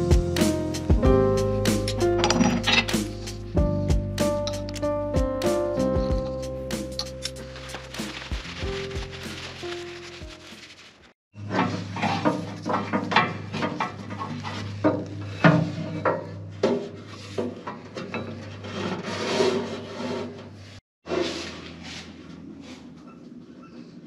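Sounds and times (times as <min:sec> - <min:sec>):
rubber belt rubbing and scraping: 0:07.3 - 0:11.2, 0:18.4 - 0:22.8.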